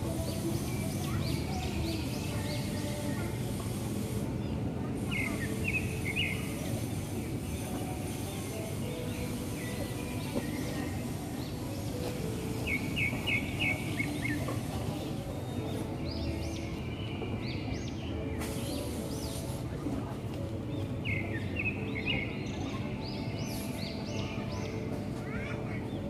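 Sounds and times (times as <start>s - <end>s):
small birds chirping: 0.1s - 19.7s.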